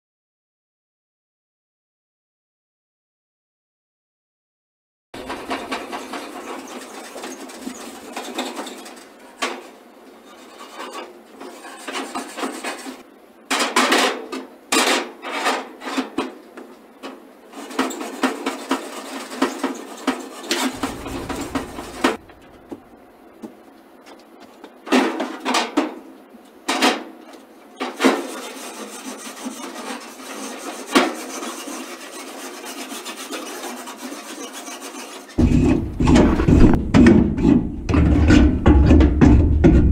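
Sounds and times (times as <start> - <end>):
grill brush scraping grates: 5.2 - 13.0, 17.5 - 22.9, 28.0 - 38.2.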